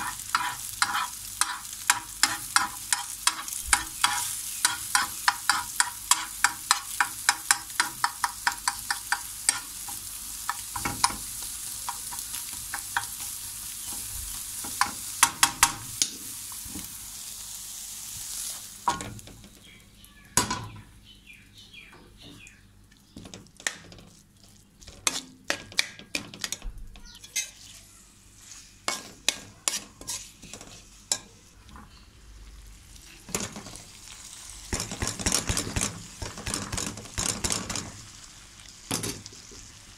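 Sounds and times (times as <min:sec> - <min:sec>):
metal spoon scraping wok: 0:00.0 - 0:07.0, 0:08.6 - 0:09.9, 0:27.2 - 0:27.8, 0:28.4 - 0:31.3
spatula tapping and scraping pan: 0:00.0 - 0:16.1, 0:24.8 - 0:27.6, 0:28.9 - 0:31.8
egg sizzling in hot oil: 0:00.0 - 0:19.8, 0:28.2 - 0:39.9.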